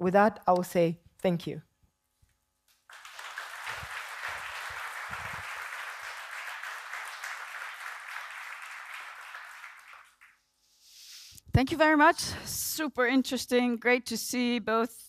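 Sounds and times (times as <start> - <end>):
audience applauding: 2.9 - 10.4.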